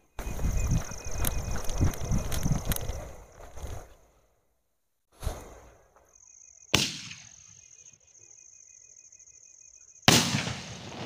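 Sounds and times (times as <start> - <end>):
sharp firework crack: 6.8 - 7.4, 10.1 - 11.0
firework firing bang: 10.1 - 11.0.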